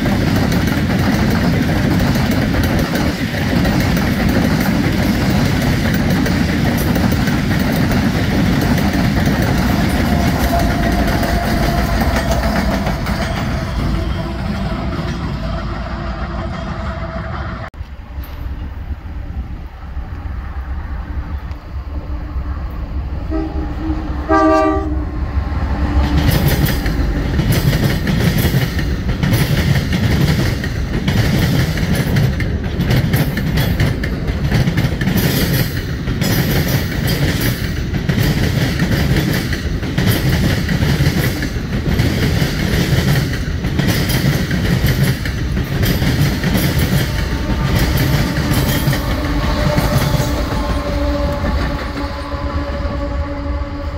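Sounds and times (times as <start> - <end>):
wheels clattering over rail joints: 0.0 - 17.0
locomotive engines rumbling: 0.0 - 53.9
train horn: 9.3 - 17.7, 21.9 - 27.2, 46.4 - 53.9.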